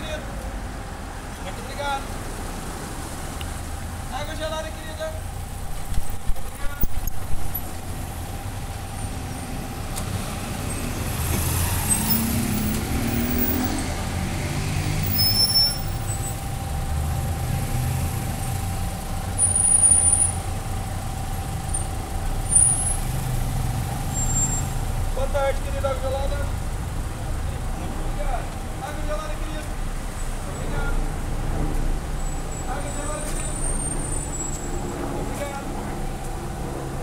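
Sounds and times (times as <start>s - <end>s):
traffic engine rumble: 0.0s - 37.0s
engine revving pulling away: 8.9s - 20.4s.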